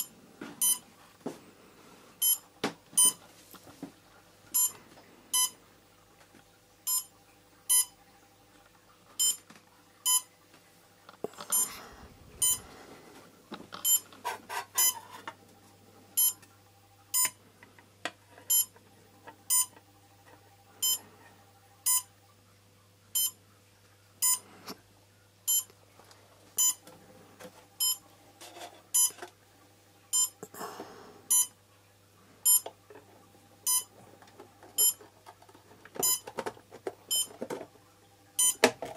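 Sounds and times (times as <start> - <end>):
short electronic beeps: 0.0 - 0.8, 2.2 - 2.4, 3.0 - 3.2, 4.6 - 4.8, 6.9 - 7.1, 7.7 - 7.9, 10.1 - 10.3, 12.4 - 12.6, 13.8 - 14.0, 21.9 - 22.1, 23.2 - 23.4, 25.5 - 25.7, 26.6 - 26.8, 27.8 - 28.0, 30.1 - 30.4, 31.3 - 31.5, 32.5 - 32.7, 33.7 - 33.9, 34.8 - 35.0, 36.0 - 36.2, 38.4 - 38.6.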